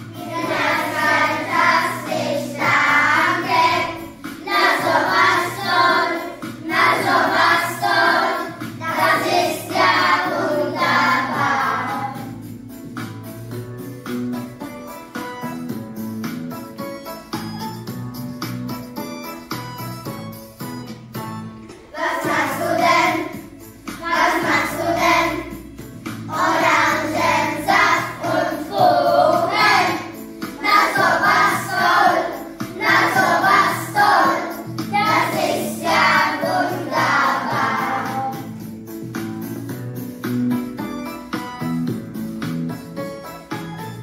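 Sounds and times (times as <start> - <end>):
children singing: 0.0 - 12.4, 21.9 - 38.6
instrumental backing track: 0.0 - 44.0.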